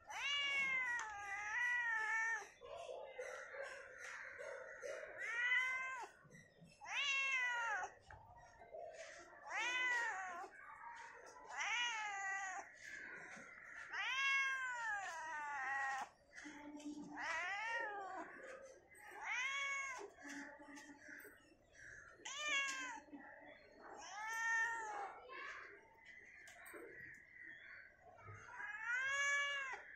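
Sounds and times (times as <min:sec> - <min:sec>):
cat meowing: 0:00.0 - 0:02.6, 0:05.0 - 0:06.2, 0:06.8 - 0:08.0, 0:09.4 - 0:10.5, 0:11.4 - 0:12.7, 0:13.9 - 0:16.0, 0:17.2 - 0:18.4, 0:19.2 - 0:20.1, 0:22.2 - 0:23.1, 0:24.0 - 0:25.2, 0:28.6 - 0:29.9.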